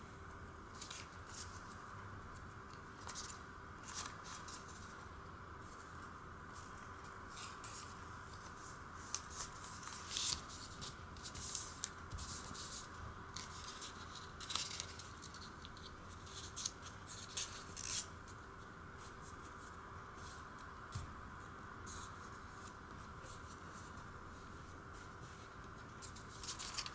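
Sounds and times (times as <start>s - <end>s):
paper rustling and crinkling: 0.7s - 5.0s, 5.6s - 21.1s, 24.9s - 26.9s.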